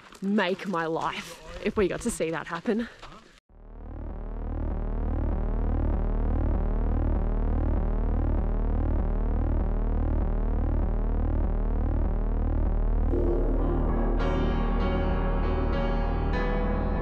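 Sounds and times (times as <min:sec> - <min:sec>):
ambient synthesizer music: 0:03.7 - 0:17.0.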